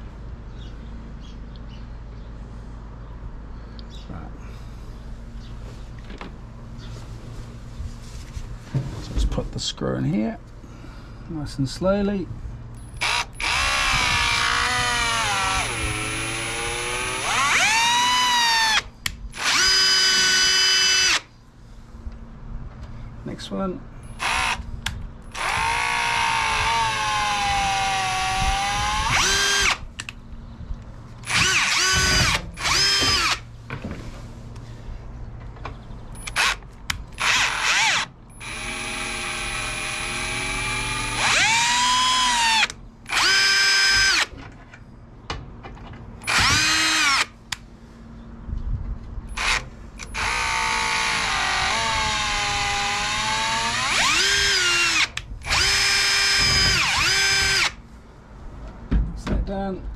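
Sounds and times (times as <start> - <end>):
cordless drill motor whine: 12.9 - 21.3, 24.1 - 24.7, 25.3 - 29.8, 31.2 - 33.4, 36.2 - 44.3, 46.2 - 47.4, 49.3 - 57.8.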